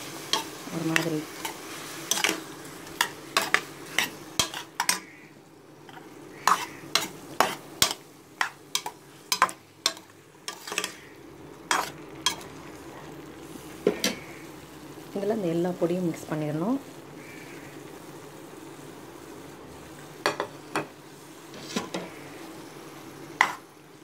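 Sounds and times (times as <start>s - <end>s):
faint frying sizzle: 0.0s - 24.0s
spoon scraping metal pot: 0.4s - 5.2s, 5.9s - 11.1s.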